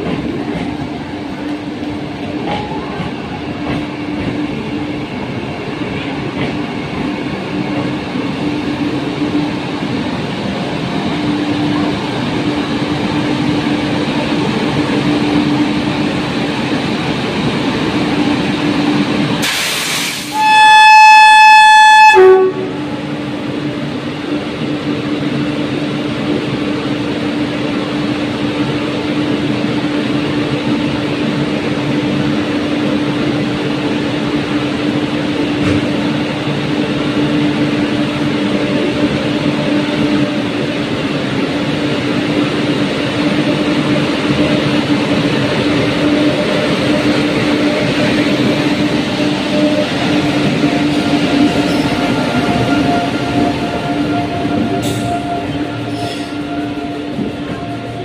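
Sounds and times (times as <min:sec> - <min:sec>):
electric locomotive hum: 0:00.0 - 0:58.0
rolling rail noise: 0:00.0 - 0:58.0
train air horn: 0:19.4 - 0:22.9, 0:49.5 - 0:58.0.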